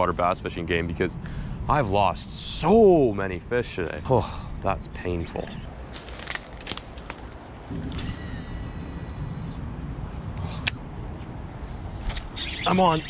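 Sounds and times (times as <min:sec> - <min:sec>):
footsteps in brush: 0:05.9 - 0:07.6
low rumble: 0:07.6 - 0:12.1.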